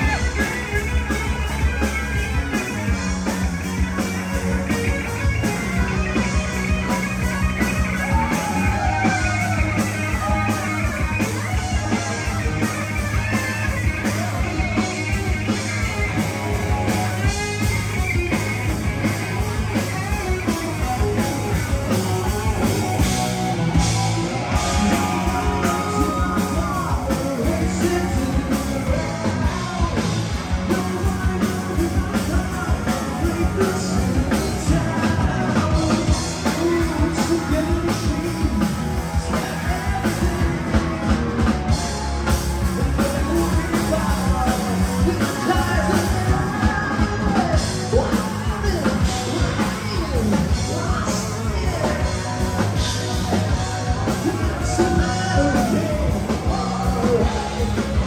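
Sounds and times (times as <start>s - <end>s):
rock band playing live: 0.0s - 58.0s
steady drum beat: 0.0s - 58.0s
person singing: 19.4s - 58.0s.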